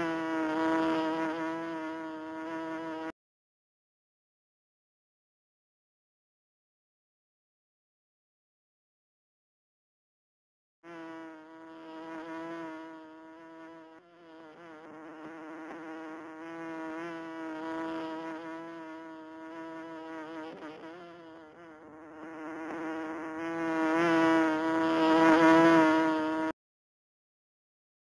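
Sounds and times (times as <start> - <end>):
bee buzzing: 0.0 - 3.2, 10.8 - 26.6.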